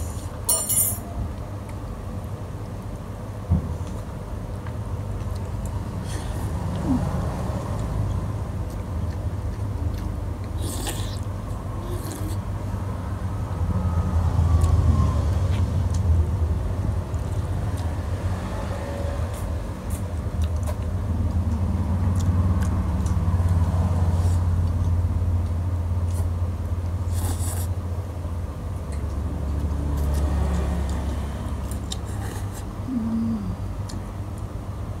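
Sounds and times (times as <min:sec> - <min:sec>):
noodles being slurped: 0:27.1 - 0:27.8.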